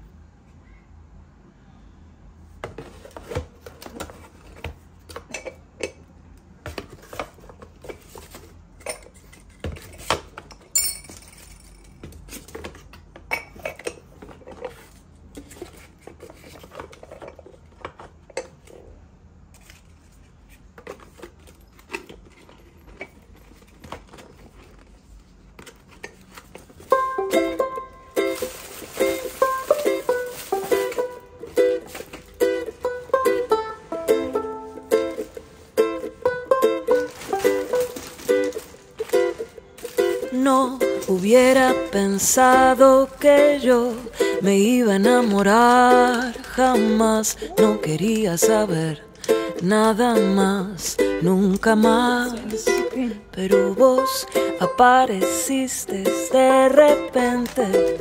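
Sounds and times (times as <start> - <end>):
ringing clink: 10.8 - 11.9.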